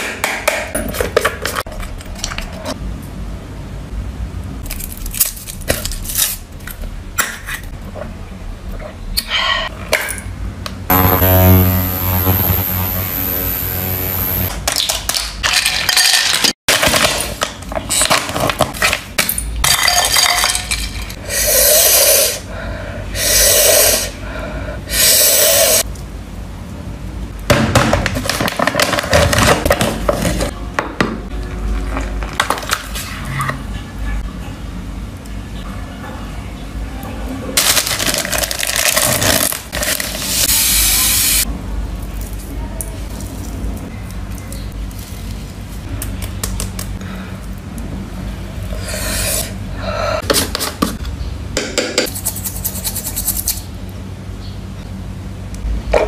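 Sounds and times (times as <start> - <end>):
steady tones: 10.9 - 14.5.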